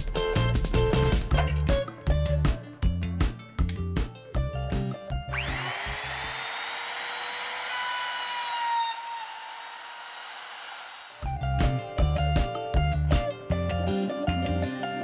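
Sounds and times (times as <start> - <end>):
background music with a beat: 0.0 - 5.4, 11.2 - 15.0
trim router whining: 5.3 - 11.5.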